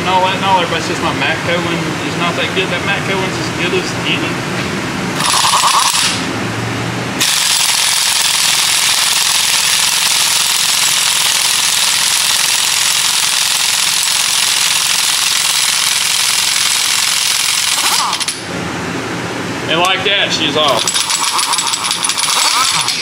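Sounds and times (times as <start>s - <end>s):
pneumatic impact wrench hammering: 5.2s - 6.3s, 7.2s - 18.5s, 20.7s - 23.0s.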